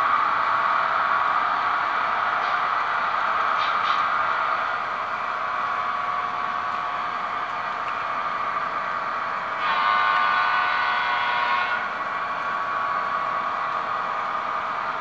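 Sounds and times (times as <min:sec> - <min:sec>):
model locomotive horn: 0:09.6 - 0:12.0.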